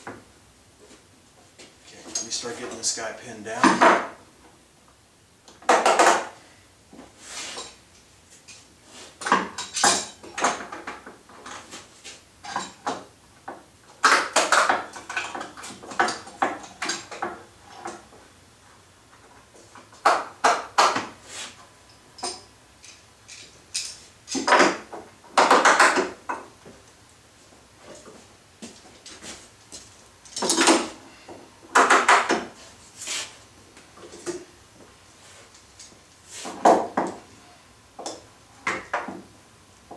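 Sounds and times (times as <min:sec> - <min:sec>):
metal clamps clanking and rattling: 0:09.3 - 0:11.6.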